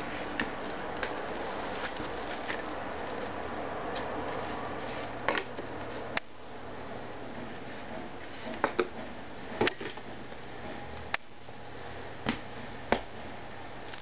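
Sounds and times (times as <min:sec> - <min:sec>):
room noise: 0:00.0 - 0:14.0.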